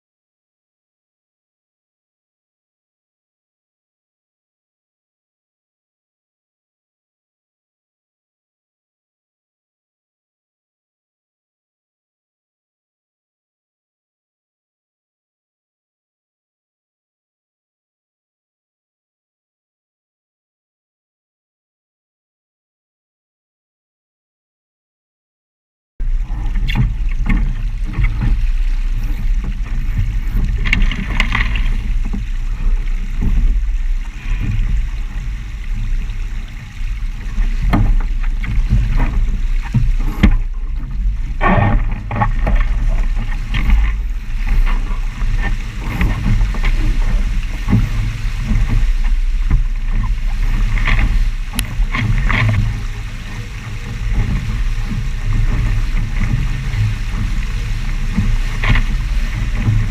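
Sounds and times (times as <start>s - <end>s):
knocks and splashes against hull: 26.0s - 59.9s
low rumble: 26.0s - 59.9s
rushing water: 26.0s - 59.9s
wind buffeting microphone: 26.0s - 59.9s.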